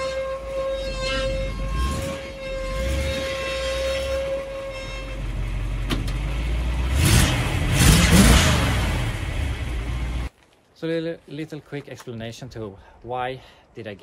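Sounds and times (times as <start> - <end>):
high steady squeal: 0.0 - 5.7
truck engine running: 0.5 - 10.3.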